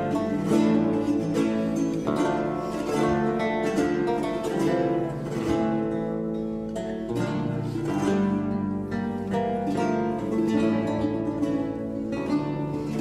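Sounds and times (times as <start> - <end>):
lute music: 0.0 - 13.0.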